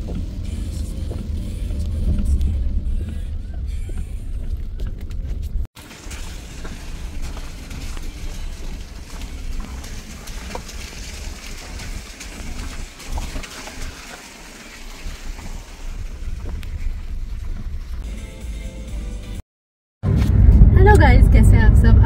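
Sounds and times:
wind buffeting microphone: 1.7s - 18.0s.

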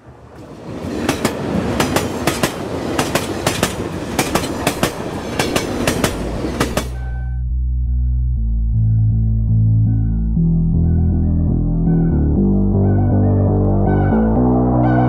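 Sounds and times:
train wheels clickety-clack: 0.3s - 7.1s.

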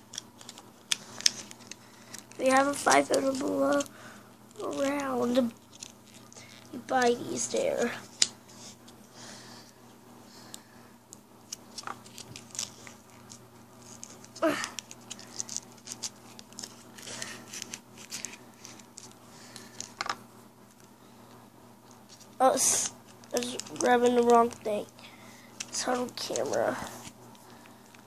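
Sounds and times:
plastic packaging rustling: 11.5s - 20.2s, 22.0s - 28.0s.

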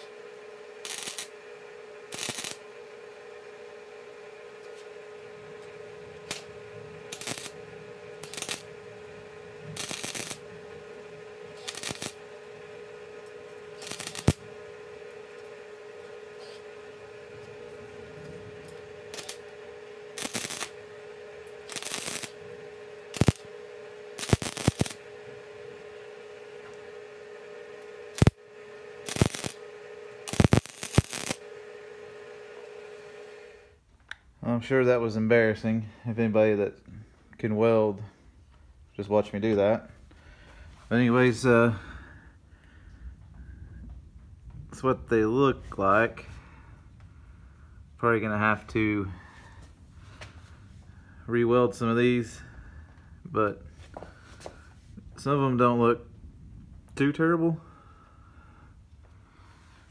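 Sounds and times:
welding arc crackle: 0.0s - 33.6s
welder hum: 0.0s - 59.9s.

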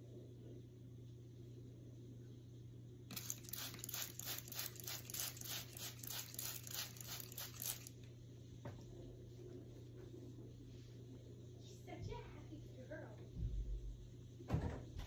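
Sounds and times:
spray bottle hissing sprays: 3.1s - 8.0s.

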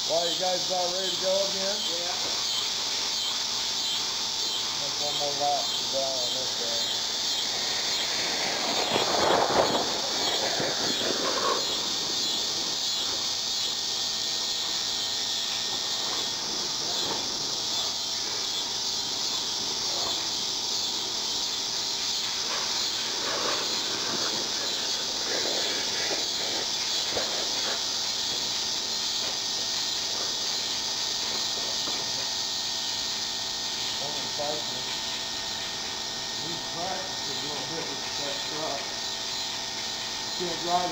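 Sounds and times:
insects chorus: 0.0s - 40.9s
rough rushing noise: 7.5s - 13.3s.

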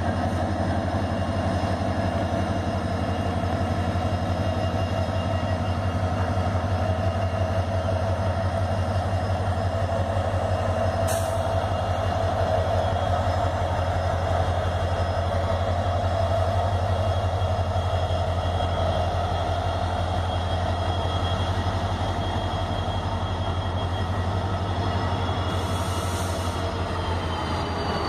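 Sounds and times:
diesel locomotive engine throbbing: 0.0s - 28.0s.

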